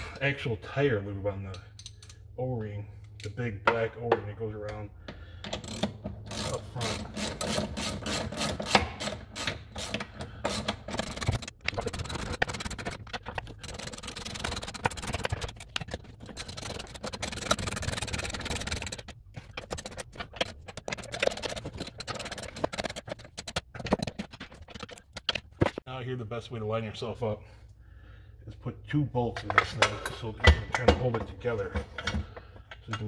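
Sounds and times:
socket ratchet clicking: 5.4 - 24.1
handling metal parts: 5.4 - 25.8
metal scraping: 6.3 - 25.7.

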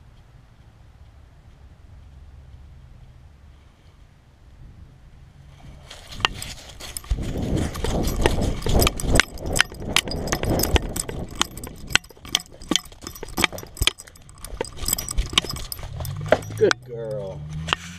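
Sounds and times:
dog running thumps: 6.1 - 17.2
camera mount clicking and rattling: 6.2 - 16.9.

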